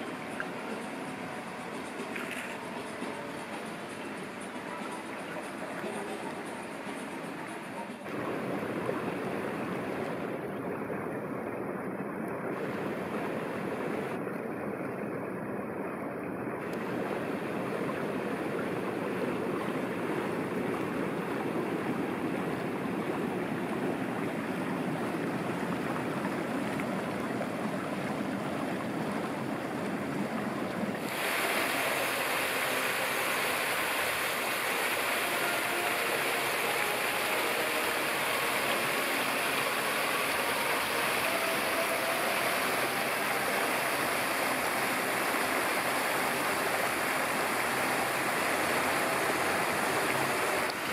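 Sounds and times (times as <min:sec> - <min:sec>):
dull outdoor rushing noise: 0:00.0 - 0:50.9
fountain jets splashing: 0:00.0 - 0:50.9.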